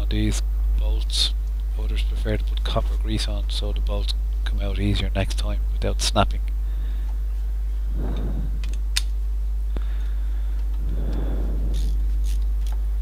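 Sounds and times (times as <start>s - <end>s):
steady low hum: 0.0s - 13.0s
soft swells of noise: 7.8s - 8.9s, 10.6s - 12.3s.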